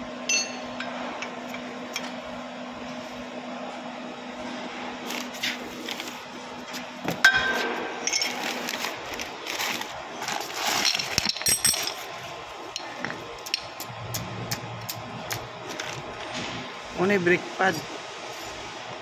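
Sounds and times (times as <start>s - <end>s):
metal clinks and clatters: 8.0s - 8.5s, 10.6s - 12.1s.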